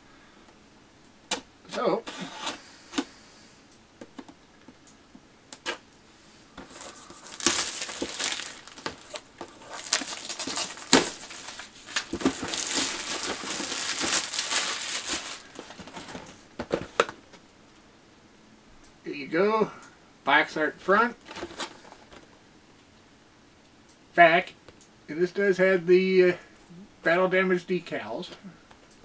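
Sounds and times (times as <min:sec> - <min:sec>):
plastic shrink wrap tearing: 0:06.7 - 0:16.1.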